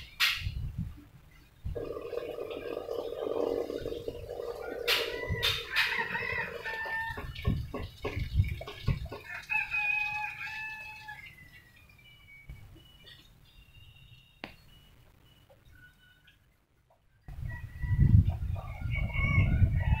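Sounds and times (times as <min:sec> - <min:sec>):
rooster crowing: 0:04.3 - 0:07.4, 0:09.2 - 0:11.4, 0:17.4 - 0:20.0.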